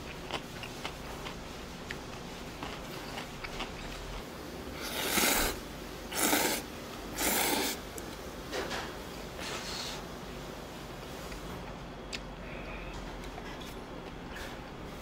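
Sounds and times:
person slurping noodles: 4.8s - 7.9s.

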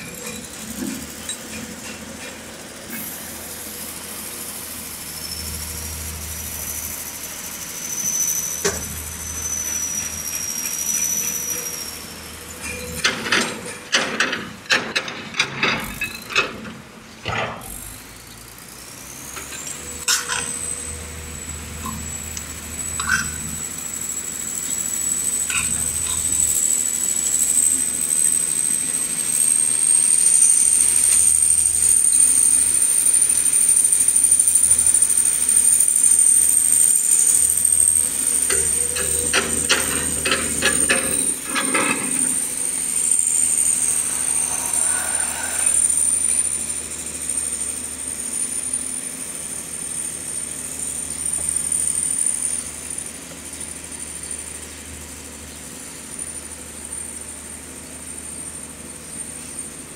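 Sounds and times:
oil pump high whine: 17.2s - 59.9s
low hum: 42.3s - 47.7s.

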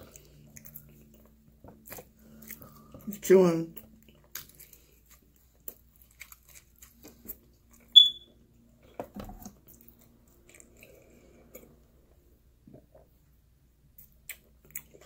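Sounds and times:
chewing pizza crust: 0.0s - 8.0s, 8.8s - 13.3s, 13.9s - 15.0s
short high beep: 8.0s - 8.3s.

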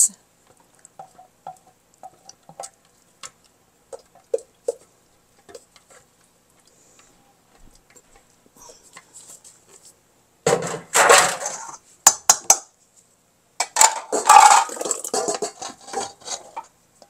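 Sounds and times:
dishes and utensils clattering: 10.5s - 12.6s, 13.6s - 16.7s.

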